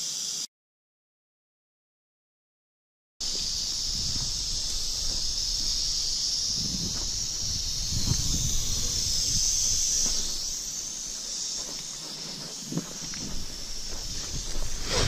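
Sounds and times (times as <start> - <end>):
footsteps in dry leaves: 3.2 - 15.0
rattlesnake rattling: 3.2 - 15.0.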